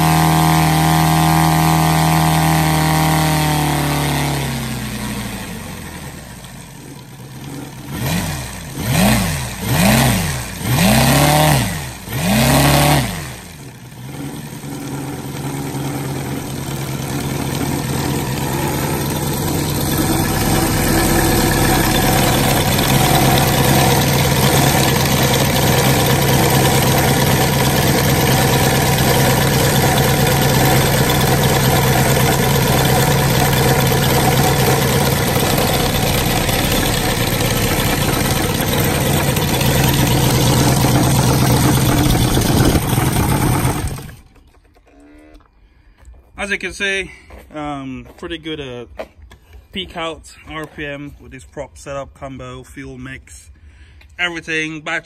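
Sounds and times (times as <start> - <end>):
radial engine running: 5.4 - 44.3.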